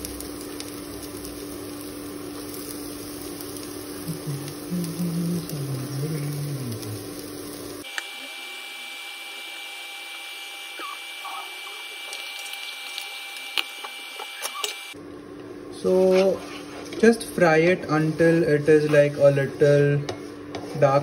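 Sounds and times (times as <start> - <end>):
vegetables sizzling in hot oil: 0.0 - 15.0
thin high whine: 7.8 - 15.0.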